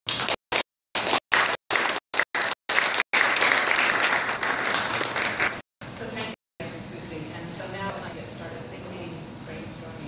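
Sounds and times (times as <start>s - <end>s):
audience applauding: 0.1s - 5.6s.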